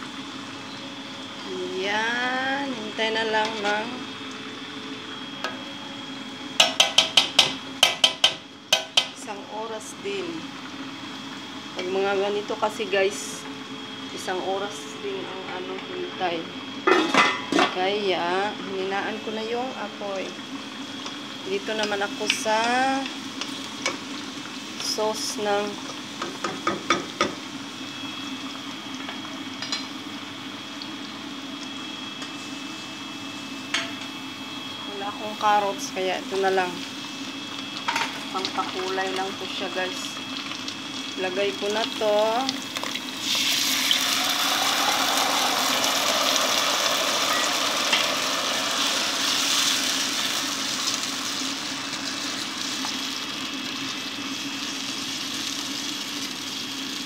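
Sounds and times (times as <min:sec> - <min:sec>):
onions sizzling in oil: 0:00.0 - 0:14.8, 0:15.5 - 0:57.0
spatula knocking against pot: 0:06.6 - 0:09.1.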